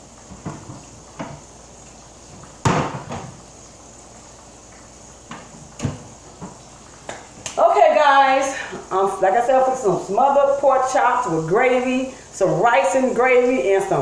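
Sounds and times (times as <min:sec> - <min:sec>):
kitchen items knocking and clattering: 0:00.3 - 0:01.5, 0:02.3 - 0:03.4.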